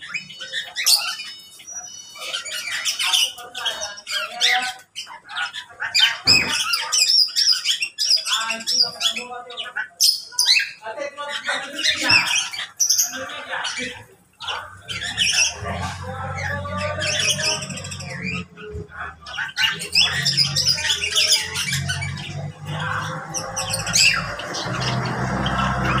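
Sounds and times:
birds squawking and chirping: 0:00.0 - 0:26.0.

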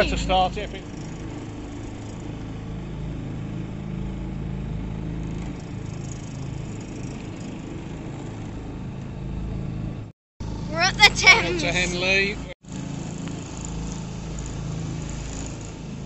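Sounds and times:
motorboat engine humming: 0:00.0 - 0:16.0.

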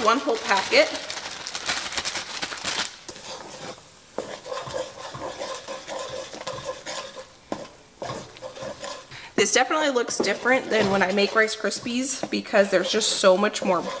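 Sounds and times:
butter sizzling: 0:00.0 - 0:14.0
spatula scraping a pot: 0:03.1 - 0:14.0.

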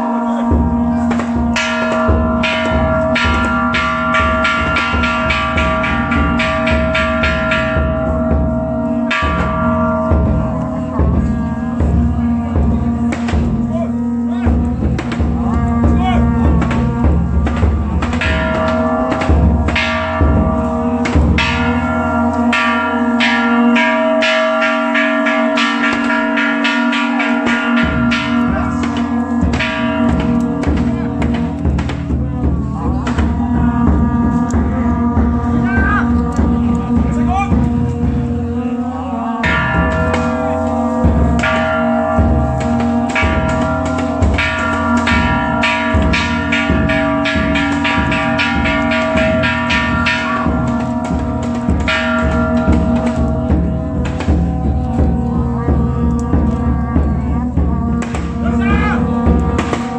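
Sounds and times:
metal bells ringing: 0:00.0 - 0:38.3, 0:39.4 - 0:59.9
heavy low rumble: 0:14.5 - 0:59.9.

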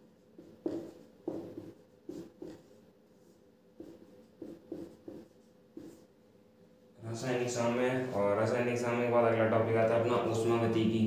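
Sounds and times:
marker pen writing on whiteboard: 0:00.0 - 0:06.2.

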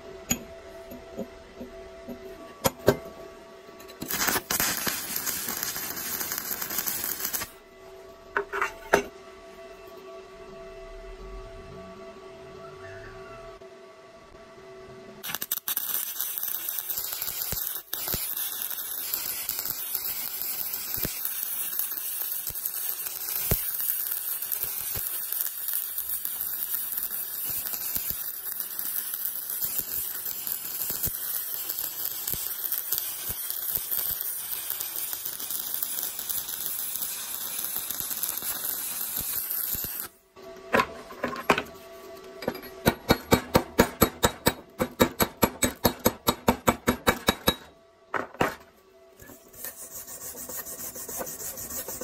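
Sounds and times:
welding arc crackling hiss: 0:04.0 - 0:07.6, 0:15.2 - 0:40.2.

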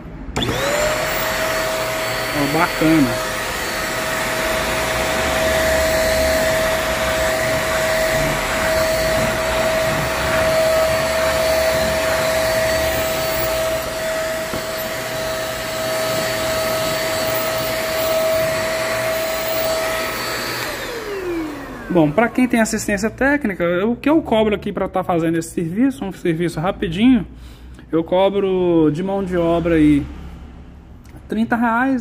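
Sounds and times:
vacuum cleaner high whine: 0:00.4 - 0:23.0.

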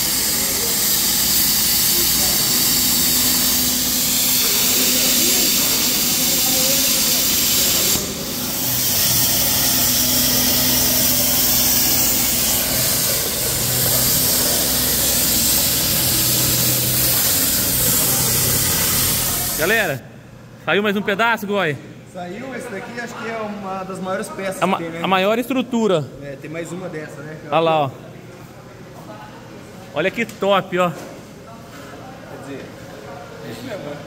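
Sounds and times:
plasma cutter hissing: 0:00.0 - 0:20.0.

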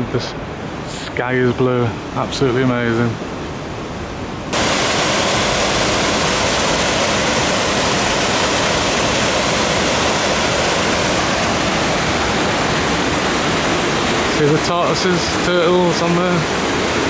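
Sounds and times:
waterfall rushing: 0:04.5 - 0:17.0.

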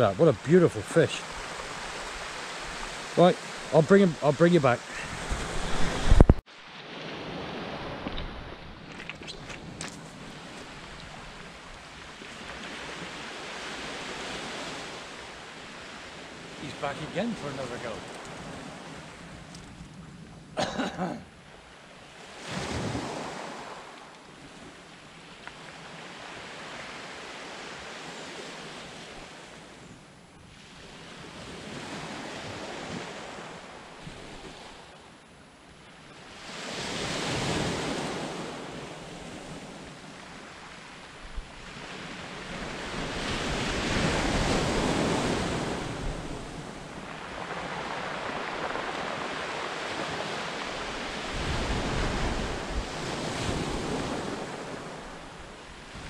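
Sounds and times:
sea waves breaking on beach: 0:00.0 - 0:19.4, 0:21.5 - 0:29.9, 0:30.5 - 0:35.3, 0:36.2 - 0:56.0
wind buffeting microphone: 0:04.8 - 0:06.4.

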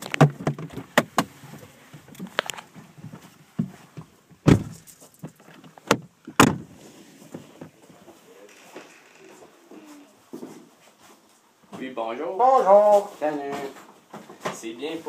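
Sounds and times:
knocks and handling rustles: 0:00.0 - 0:12.0, 0:12.8 - 0:15.0
car doors thudding shut: 0:04.4 - 0:04.8, 0:05.8 - 0:06.8.

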